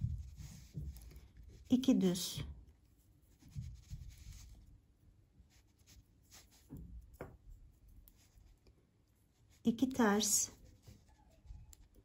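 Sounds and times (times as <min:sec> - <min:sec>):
yarn swishing: 0:00.0 - 0:02.4.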